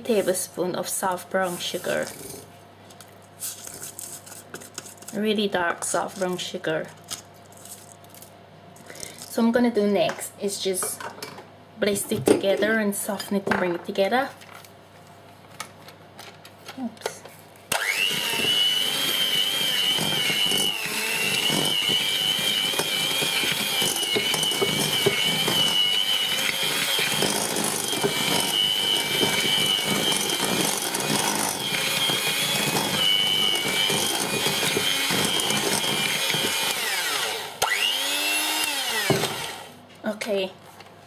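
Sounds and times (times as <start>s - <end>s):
electric hand mixer whining: 17.7s - 39.8s.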